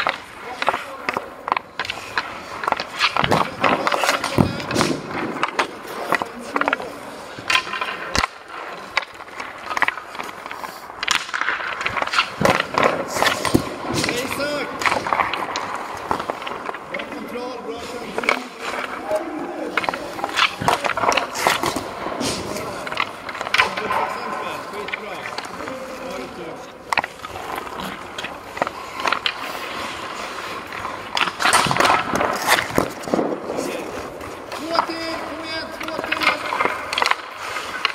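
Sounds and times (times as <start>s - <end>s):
hockey sticks striking pucks: 0.0s - 37.9s
skate blades scraping ice: 0.0s - 37.9s.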